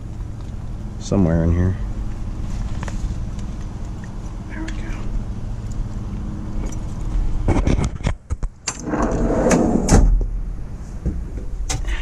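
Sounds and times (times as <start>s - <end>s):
vehicle engine idling: 0.0s - 7.5s.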